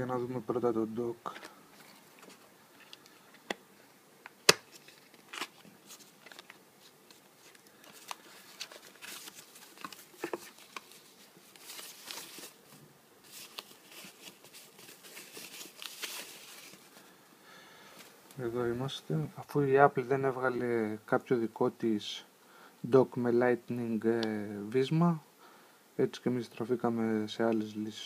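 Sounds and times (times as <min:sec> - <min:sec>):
plastic bag crinkling: 0:04.7 - 0:17.0.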